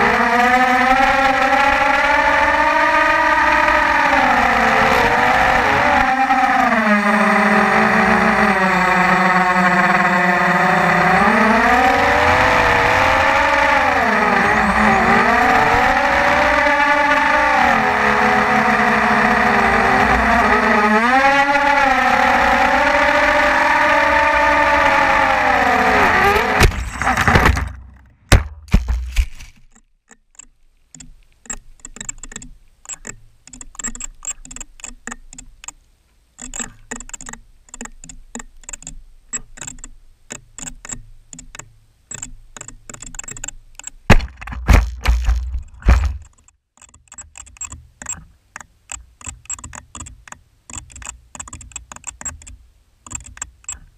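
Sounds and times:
loud low rumbling and buffeting: 0:00.0 - 0:27.3
quadcopter motors whining: 0:00.0 - 0:27.5
faint clicks and ticks: 0:29.2 - 0:53.9.

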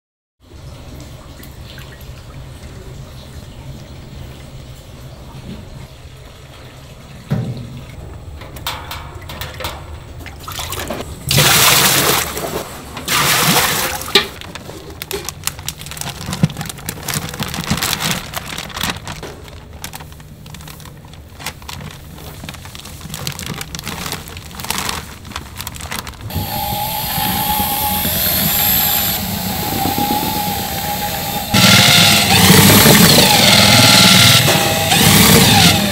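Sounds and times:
plastic bag rustling: 0:11.6 - 0:27.6.

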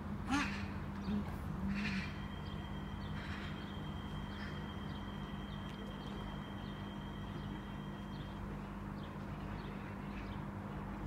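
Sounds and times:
low electrical hum of train: 0:00.0 - 0:11.0
thin high whine: 0:01.6 - 0:08.8.

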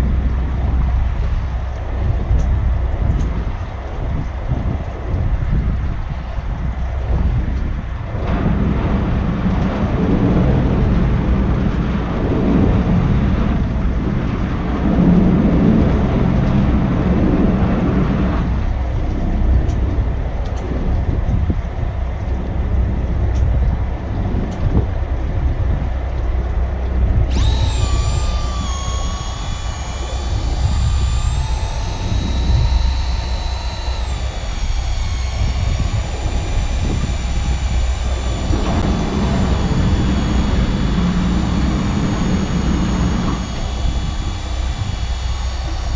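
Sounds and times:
wind rumble on microphone: 0:00.0 - 0:45.9
high multi-tone whine: 0:27.2 - 0:45.9.

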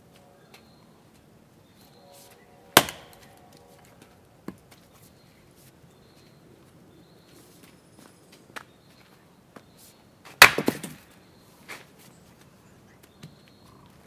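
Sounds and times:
axe cracking into log: 0:02.8 - 0:03.4, 0:10.4 - 0:11.1.

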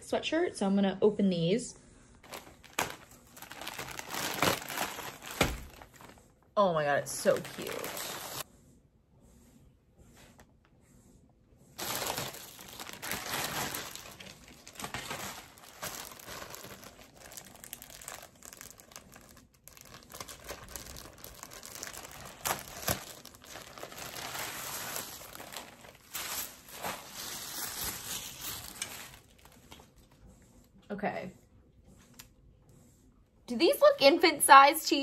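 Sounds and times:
plastic bag crinkling: 0:02.2 - 0:06.2, 0:07.0 - 0:08.4, 0:11.8 - 0:30.0.

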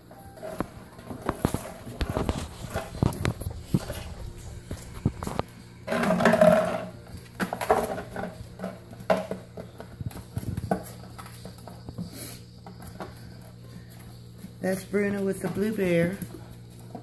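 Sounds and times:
plastic bottle pushed about: 0:00.4 - 0:11.2.

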